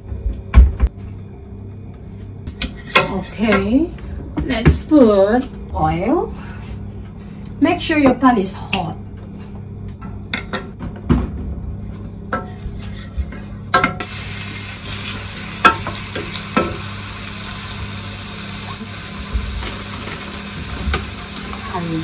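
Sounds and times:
onion sizzling in hot oil: 14.0s - 22.0s.

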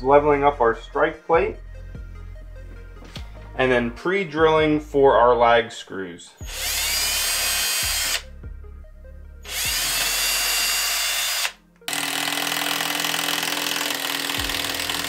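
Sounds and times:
cordless drill boring holes: 6.4s - 8.2s, 9.4s - 15.0s
impact driver driving screw: 6.4s - 8.2s, 9.5s - 15.0s.

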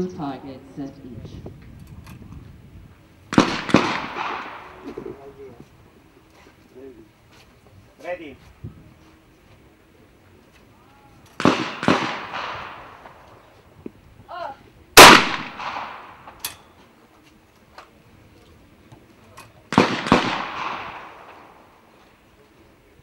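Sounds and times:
shotgun shots with echo: 3.3s - 5.2s, 11.4s - 13.2s, 15.0s - 16.4s, 19.7s - 21.6s.

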